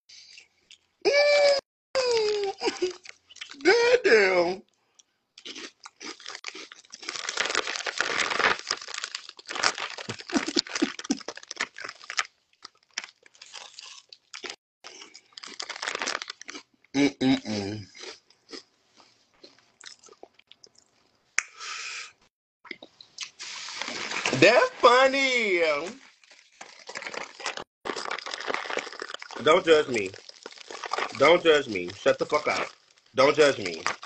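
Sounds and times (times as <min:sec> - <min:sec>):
chips crunching and chewing: 0:05.0 - 0:16.7, 0:17.9 - 0:21.0, 0:26.1 - 0:34.0
chip bag crinkling: 0:05.5 - 0:16.6, 0:23.4 - 0:34.0.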